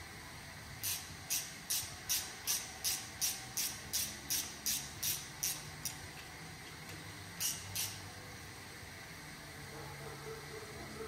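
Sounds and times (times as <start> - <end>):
ratchet wrench clicking: 0.8 - 6.0, 7.4 - 8.1.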